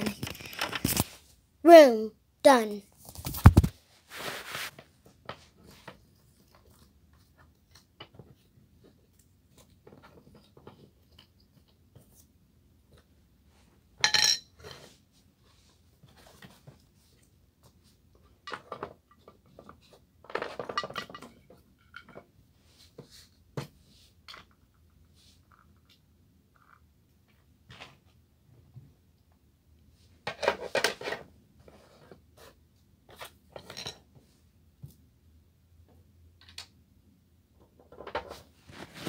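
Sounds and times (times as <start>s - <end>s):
household objects clinking and clattering: 18.4s - 22.3s.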